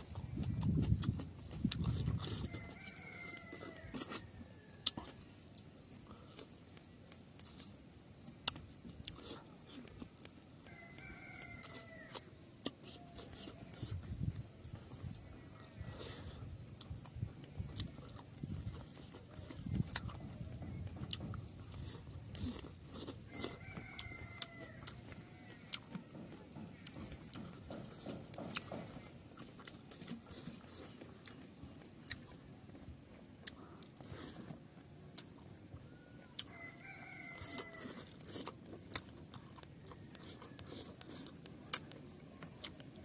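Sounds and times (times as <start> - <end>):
chewing with lip-smacking: 0.0 - 43.0
rooster crowing: 2.4 - 5.0, 10.6 - 12.3, 23.3 - 27.1, 35.8 - 38.2.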